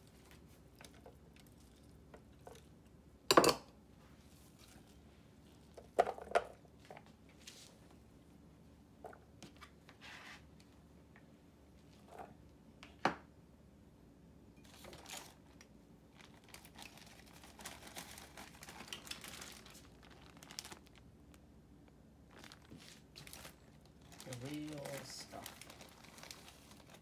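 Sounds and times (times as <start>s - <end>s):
garlic skins crinkling: 14.7s - 21.2s, 22.3s - 27.0s.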